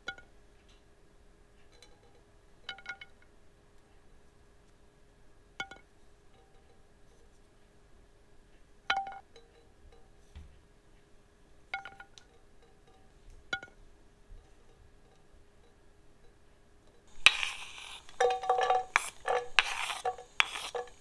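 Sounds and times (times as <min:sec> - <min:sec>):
faint steady hum: 0:00.0 - 0:21.0
wooden spoon knocking on pan: 0:17.1 - 0:21.0.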